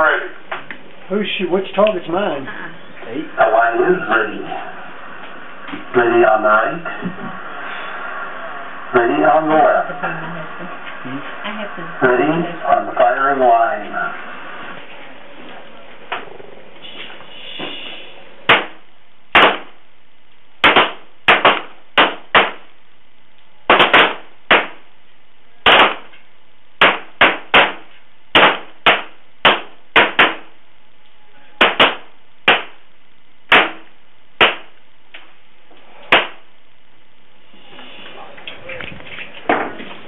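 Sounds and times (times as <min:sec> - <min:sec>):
pistol shots: 0:18.5 - 0:19.8, 0:20.6 - 0:22.6, 0:23.7 - 0:24.8, 0:25.6 - 0:26.1, 0:26.8 - 0:30.5, 0:31.6 - 0:32.8, 0:33.5 - 0:34.7.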